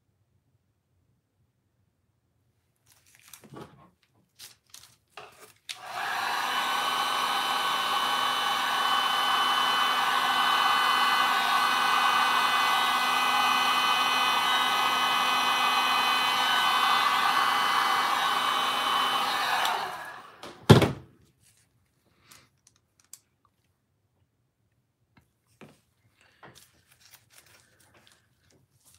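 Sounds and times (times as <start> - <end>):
heat gun fan whining: 5.7 - 20.8.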